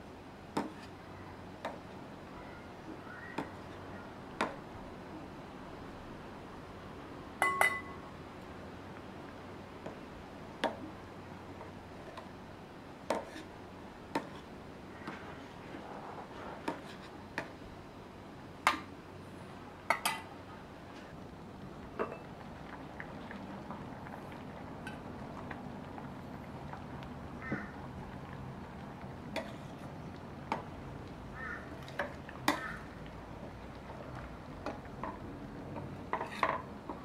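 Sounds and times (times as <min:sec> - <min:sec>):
dishes and utensils clinking: 0:07.4 - 0:08.0.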